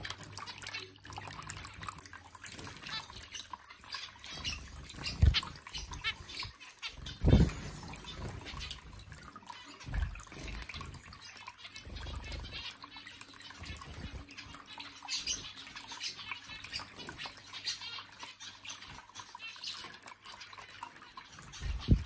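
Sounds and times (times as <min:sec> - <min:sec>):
birds fluttering in water: 0:00.0 - 0:22.0
fountain water trickling: 0:00.0 - 0:22.0.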